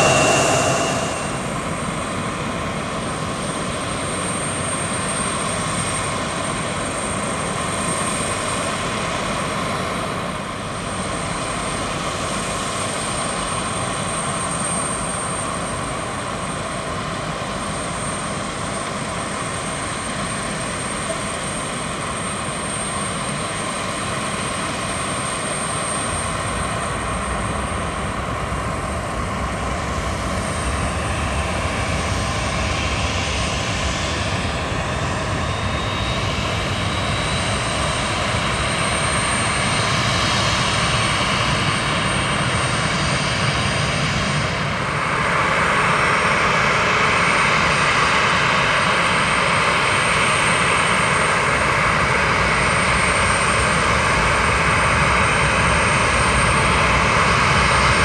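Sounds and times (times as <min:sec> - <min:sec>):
deeper rumble: 0:00.0 - 0:02.3
jet engines roaring: 0:00.0 - 0:02.5.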